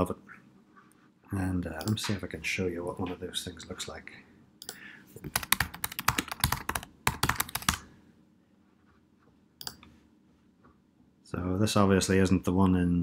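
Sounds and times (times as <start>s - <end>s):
typing on computer keyboard: 4.6s - 7.8s.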